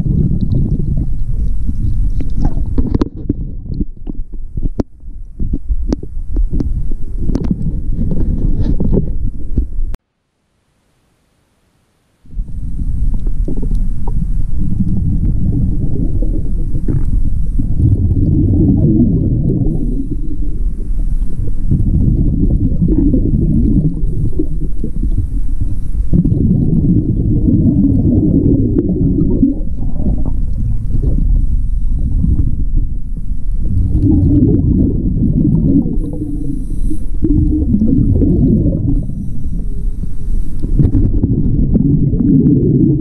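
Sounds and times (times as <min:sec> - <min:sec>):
exhaled bubbles gurgling: 0:00.0 - 0:09.9, 0:12.3 - 0:43.0
regulator inhalation hiss: 0:29.7 - 0:33.5, 0:35.9 - 0:37.3, 0:38.8 - 0:40.8.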